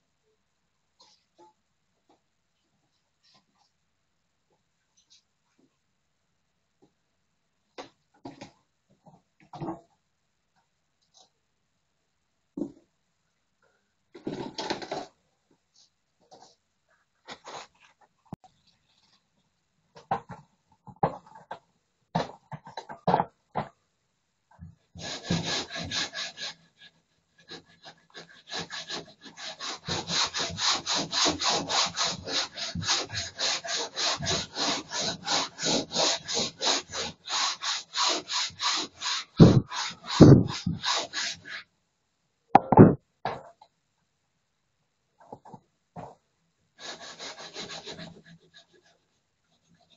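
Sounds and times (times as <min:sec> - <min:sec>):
hand tool scraping plaster wall: 0:24.9 - 0:41.7, 0:46.8 - 0:49.9.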